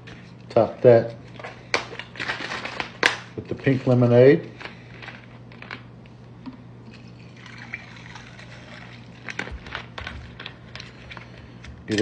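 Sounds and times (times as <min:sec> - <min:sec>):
liquid pouring into a glass: 0:07.2 - 0:09.2.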